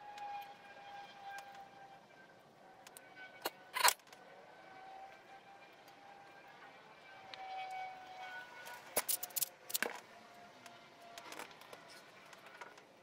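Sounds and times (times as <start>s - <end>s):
metal items clicking on workbench: 9.0s - 9.9s.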